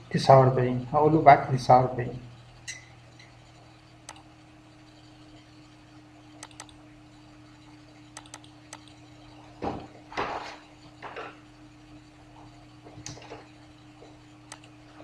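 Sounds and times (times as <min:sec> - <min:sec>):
low electrical hum: 0:00.0 - 0:15.0
computer mouse clicking: 0:02.6 - 0:05.6, 0:06.3 - 0:07.2, 0:08.0 - 0:09.4, 0:11.9 - 0:14.8.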